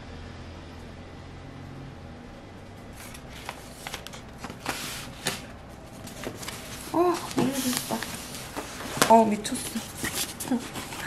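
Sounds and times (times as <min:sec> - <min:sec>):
low room hum: 0:00.0 - 0:11.0
paper and box rustling: 0:03.0 - 0:11.0.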